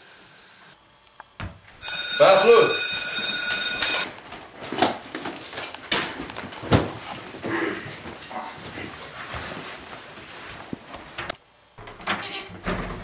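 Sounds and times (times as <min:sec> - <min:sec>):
ringing alarm tone: 0:01.8 - 0:04.1.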